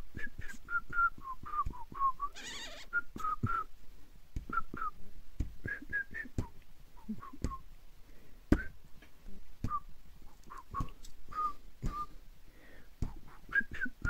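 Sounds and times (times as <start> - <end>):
person whistling: 0.2 - 3.7, 5.6 - 7.6, 8.6 - 8.8, 10.5 - 12.2, 13.5 - 14.0
soft thumps: 4.4 - 7.6, 8.5 - 9.9, 10.5 - 12.2.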